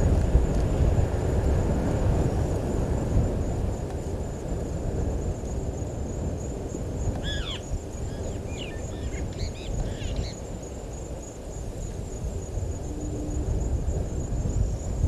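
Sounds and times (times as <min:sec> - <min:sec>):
wind rumble on microphone: 0:00.0 - 0:15.0
birds calling: 0:07.2 - 0:10.4.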